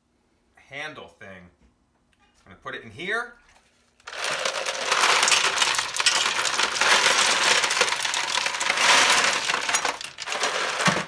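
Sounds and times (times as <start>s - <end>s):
ice cubes clattering into steel pot: 4.1s - 11.0s.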